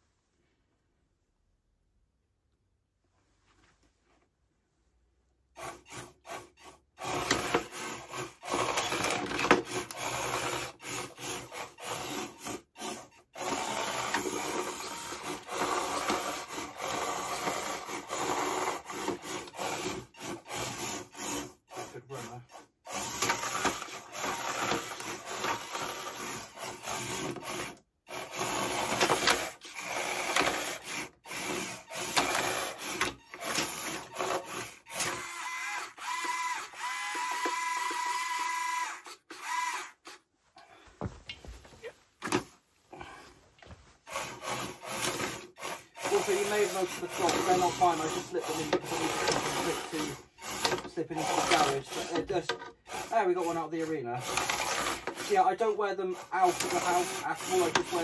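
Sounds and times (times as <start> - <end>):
small motors whirring: 5.6 - 40.2, 44.1 - 58.0
plastic scraping and knocking on wood: 41.0 - 42.6.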